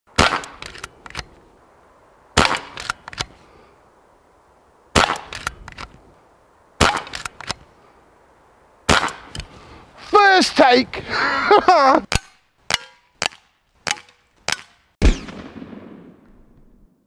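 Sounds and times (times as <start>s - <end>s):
air rifle shots cracking: 0.1s - 1.4s, 2.4s - 3.4s, 4.9s - 5.9s, 6.8s - 7.7s, 8.9s - 9.5s, 12.1s - 16.4s.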